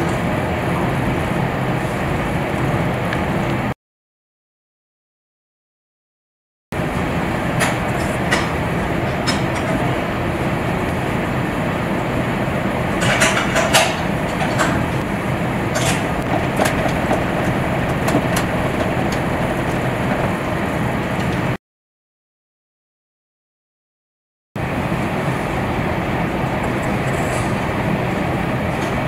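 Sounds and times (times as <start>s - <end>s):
steady hiss: 16.2s - 20.5s.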